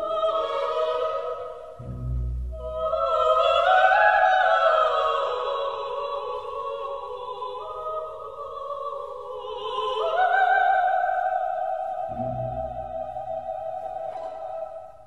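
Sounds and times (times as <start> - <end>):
operatic singing: 0.0 - 15.0.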